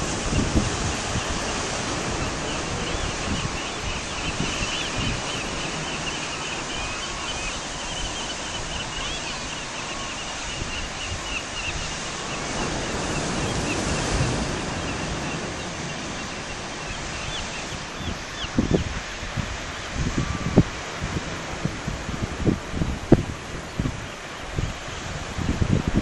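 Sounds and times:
surf breaking over boulders: 0.0 - 7.3
high bird calls: 0.0 - 19.0
wind on the shore: 0.0 - 26.0.

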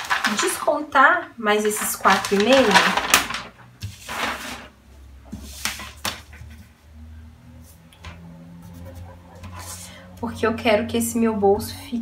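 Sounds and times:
paper rustling: 0.0 - 0.7, 1.6 - 6.7.

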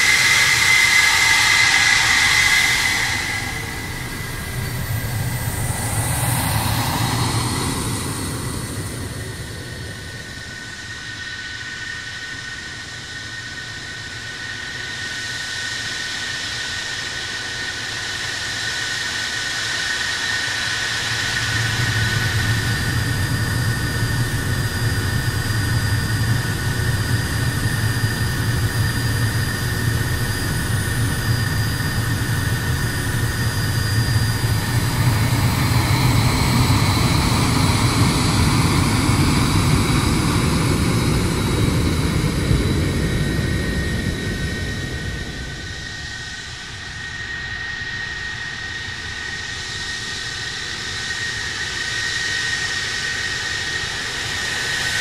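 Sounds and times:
jet engine rumble with turbine whine: 0.0 - 55.0.

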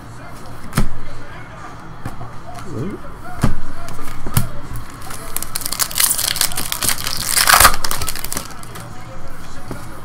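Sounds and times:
foil wrapper crinkling and tearing: 5.0 - 8.8.

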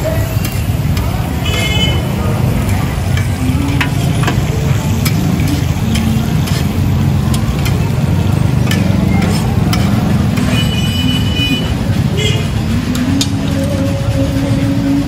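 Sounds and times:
metal spatula scraping griddle: 0.2 - 11.8.

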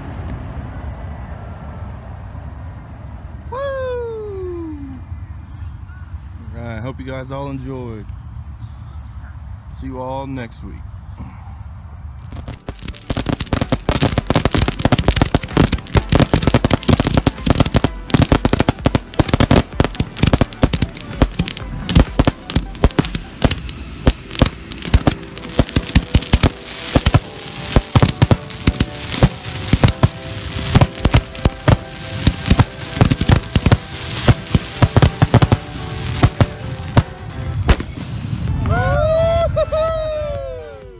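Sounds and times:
firework shells bursting: 12.3 - 38.1.

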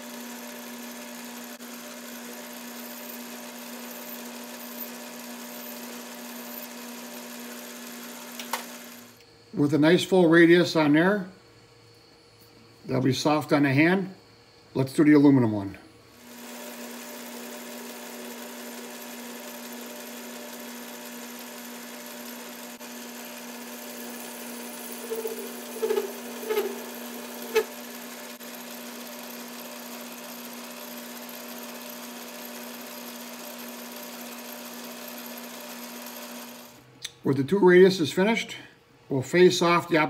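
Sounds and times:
metal lathe motor hum: 0.0 - 9.2, 16.2 - 36.8
cutting tool squealing on metal: 23.8 - 27.9.

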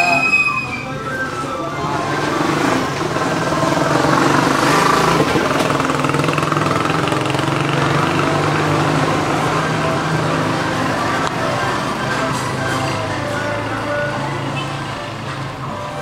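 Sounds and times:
small engine humming: 1.1 - 12.3.

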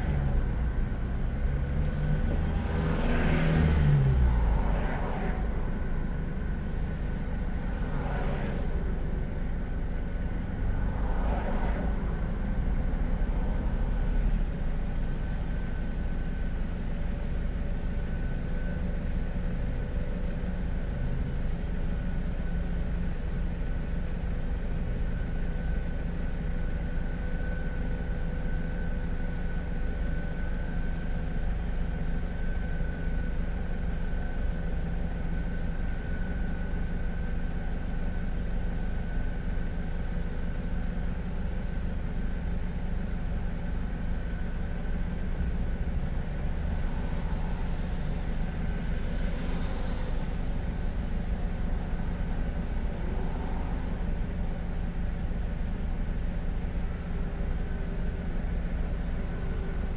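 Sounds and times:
traffic passing by: 0.0 - 16.4, 44.0 - 59.9
car engine idling: 11.8 - 59.9.

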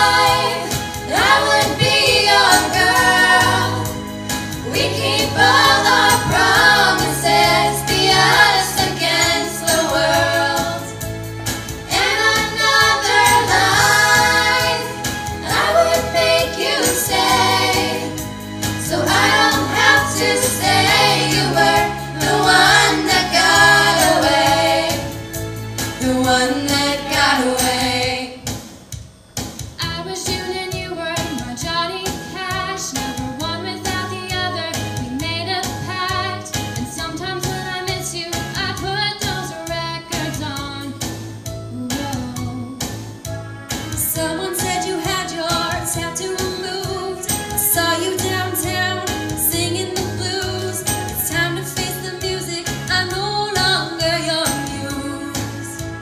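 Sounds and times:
group of girls singing pop song: 0.0 - 4.0, 4.6 - 10.9, 11.9 - 25.2, 26.0 - 28.4, 44.0 - 55.8
low musical accompaniment: 0.0 - 56.0.

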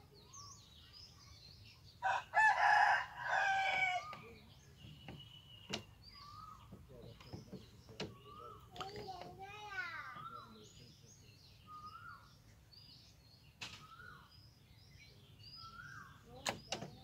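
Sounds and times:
small birds chirping: 0.0 - 17.0
rooster crowing: 2.0 - 4.1.

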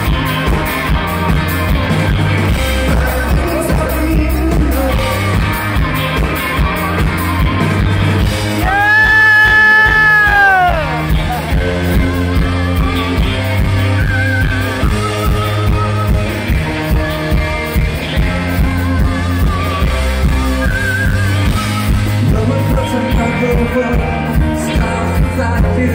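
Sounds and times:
drum beat: 0.0 - 14.0
electric guitars: 0.0 - 25.9
keyboards: 0.0 - 25.9
person singing: 2.5 - 7.0, 22.0 - 25.9.

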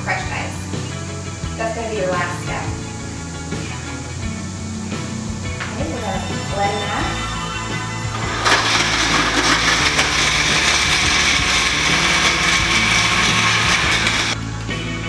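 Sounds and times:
blender crushing ice: 8.1 - 14.4.

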